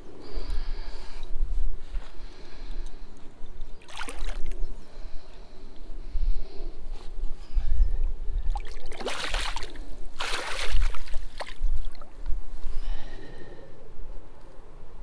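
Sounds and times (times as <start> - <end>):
water sloshing in a net: 3.8 - 4.6, 8.5 - 12.2
loud water splashes: 8.7 - 11.6.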